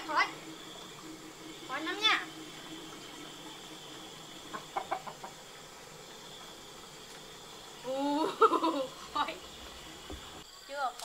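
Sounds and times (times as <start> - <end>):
faint high hum: 0.0 - 11.0
chicken clucking: 4.4 - 5.5.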